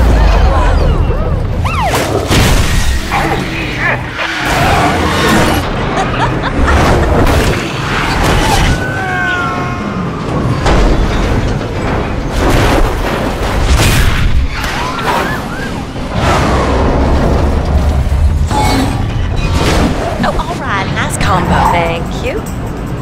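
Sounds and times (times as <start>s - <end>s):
vehicles crashing: 0.0s - 23.0s
falling squeal: 14.4s - 16.6s.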